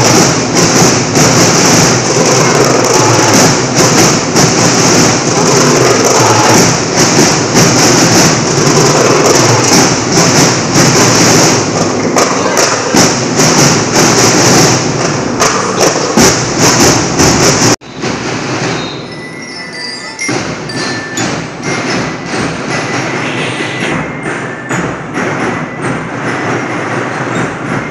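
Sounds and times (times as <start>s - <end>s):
crowd noise: 0.0s - 27.9s
marching drum band playing: 0.0s - 27.9s
held high notes: 17.8s - 26.2s.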